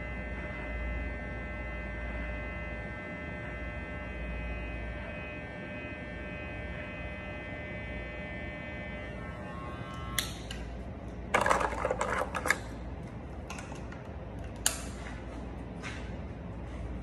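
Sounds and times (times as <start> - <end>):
electric hair clipper buzzing: 3.0 - 10.8.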